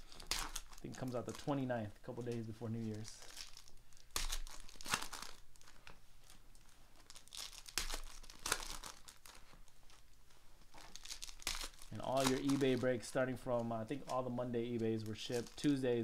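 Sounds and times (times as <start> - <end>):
foil wrapper tearing and crinkling: 0.0 - 1.5, 2.9 - 5.8, 7.0 - 9.4, 10.7 - 13.0, 13.6 - 16.0.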